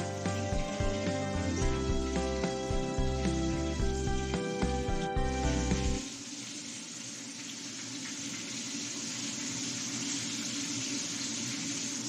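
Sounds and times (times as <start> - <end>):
background music: 0.0 - 6.0.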